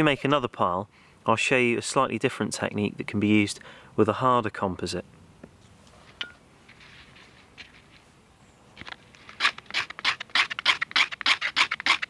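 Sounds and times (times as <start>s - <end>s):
knife scraping bark: 9.1s - 12.0s.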